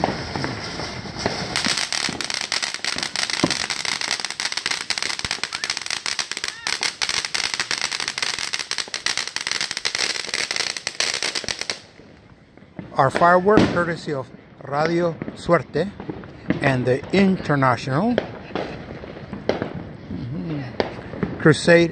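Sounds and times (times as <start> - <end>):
firework fountain hissing and crackling: 0.0 - 21.9.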